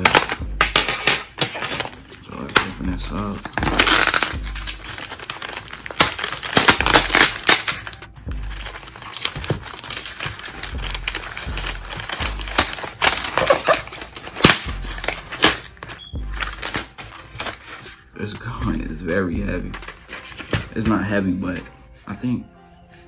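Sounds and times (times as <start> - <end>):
plastic bag crinkling: 3.2 - 17.5.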